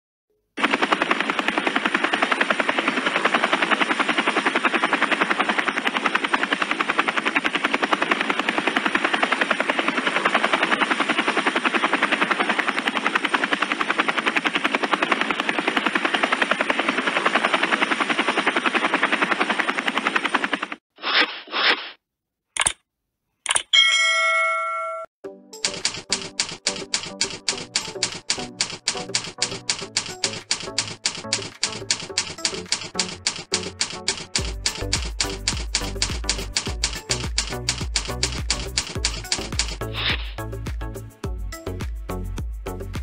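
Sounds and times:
helicopter rotor chop: 0.6 - 20.8, 25.6 - 43.0.

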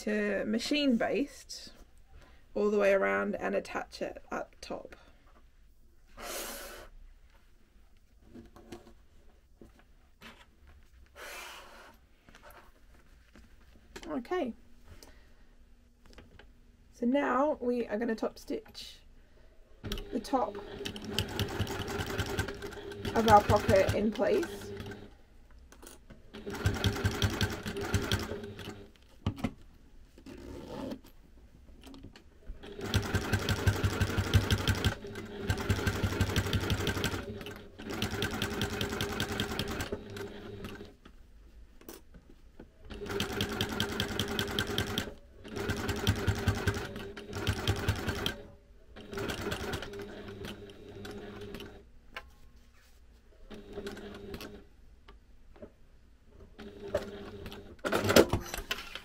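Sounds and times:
sewing machine stitching: 19.8 - 25.1, 26.3 - 28.9, 32.6 - 40.9, 42.9 - 51.8, 53.5 - 54.6, 56.6 - 59.0.

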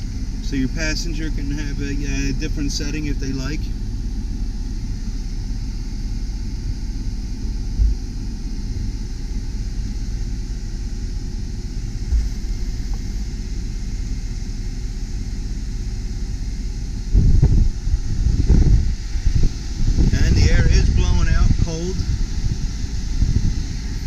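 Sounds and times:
air-conditioning blower hissing: 0.0 - 24.0
diesel engine idling: 0.0 - 24.0
low thumps: 6.5 - 8.9, 11.9 - 13.3.

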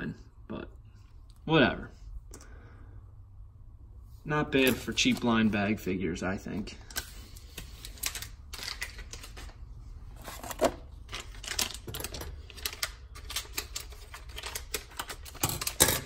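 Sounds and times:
foil packet crinkling: 7.7 - 9.6, 10.2 - 15.8.

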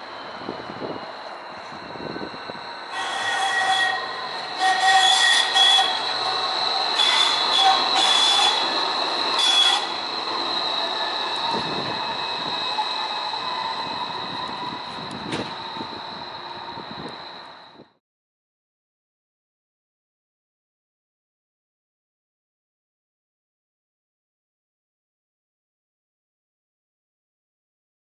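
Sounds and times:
streetcar wheels squealing on rails: 0.0 - 18.0.

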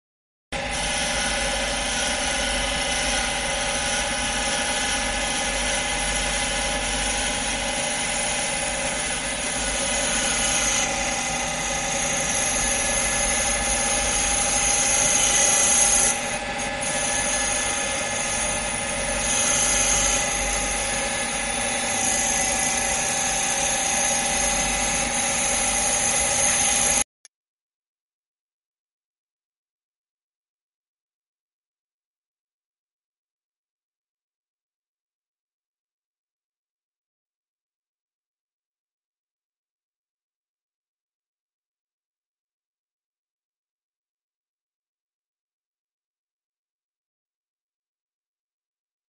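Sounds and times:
lathe machine whine: 0.6 - 27.1.

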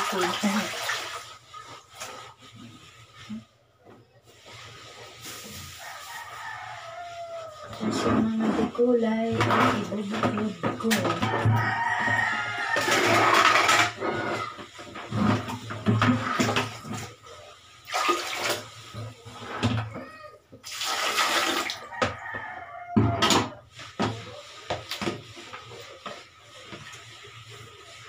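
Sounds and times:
water splashing in plastic basins: 0.0 - 3.8, 7.6 - 28.0
plastic buckets knocking: 7.8 - 17.2, 21.2 - 26.8.

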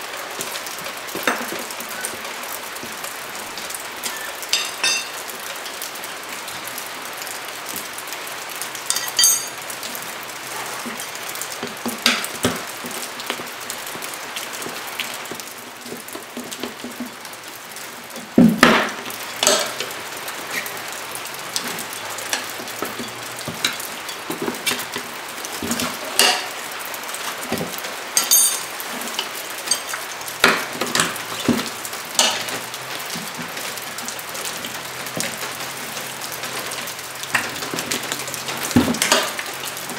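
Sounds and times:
tire irons clinking on a rim: 0.4 - 5.8, 8.6 - 9.8, 19.2 - 39.9.

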